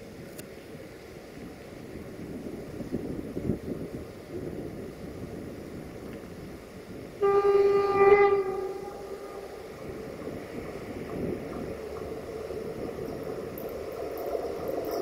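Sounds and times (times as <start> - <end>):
train rumble: 0.0 - 15.0
locomotive horn blast: 7.2 - 10.0.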